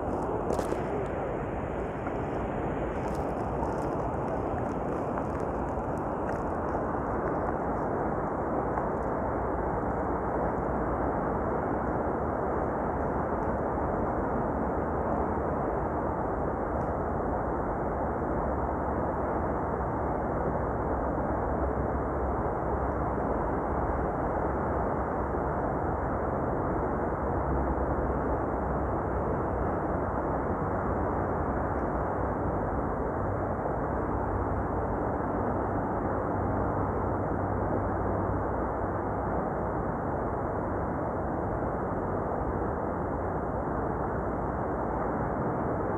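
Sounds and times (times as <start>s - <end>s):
wind on microphone: 0.0s - 12.0s.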